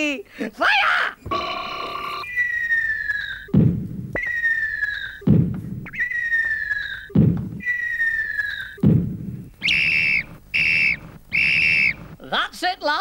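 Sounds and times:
cartoon falling whistle: 2.2 - 3.5, 4.2 - 5.2, 5.9 - 8.8, 9.6 - 12.0
whistle blown: 2.2 - 8.8, 9.6 - 12.2
cartoon thud: 3.5 - 4.4, 5.2 - 6.0, 7.1 - 7.7, 8.8 - 9.9.

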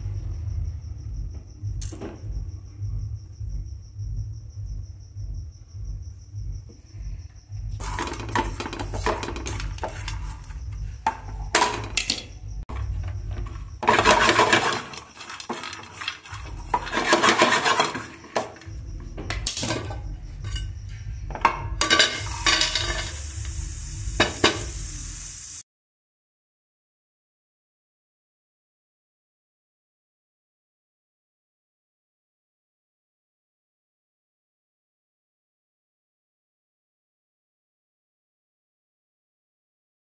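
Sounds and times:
steady low hum: 0.0 - 14.1
spatula scraping frying pan: 7.8 - 11.9, 13.8 - 18.7, 21.8 - 23.3.

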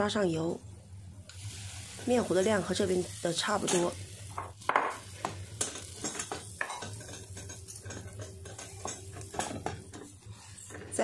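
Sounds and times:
eggs frying softly: 0.0 - 11.0
utensil tapping on pan: 4.4 - 10.1.

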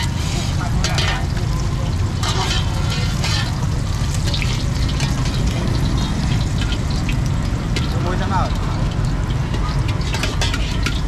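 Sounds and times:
metal spatulas scraping woks: 0.0 - 1.4, 2.1 - 7.0, 9.5 - 11.0
food sizzling: 0.0 - 11.0.

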